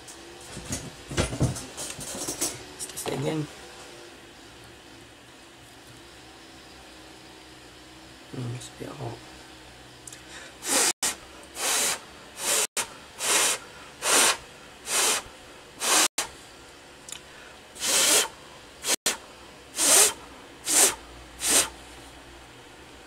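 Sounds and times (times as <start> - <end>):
hissing puffs of breath: 10.1 - 10.9.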